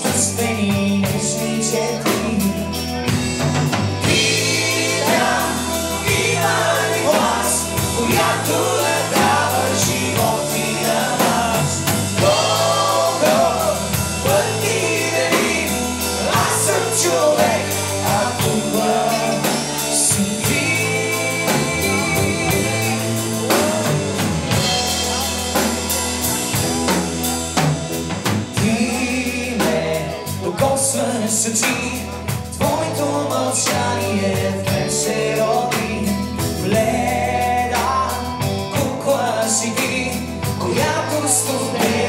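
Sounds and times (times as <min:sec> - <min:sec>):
bass: 0:00.0 - 0:42.0
drum kit beat: 0:00.0 - 0:42.0
electric and acoustic guitars: 0:00.0 - 0:42.0
keyboard: 0:00.0 - 0:42.0
melodic lead line: 0:00.0 - 0:42.0.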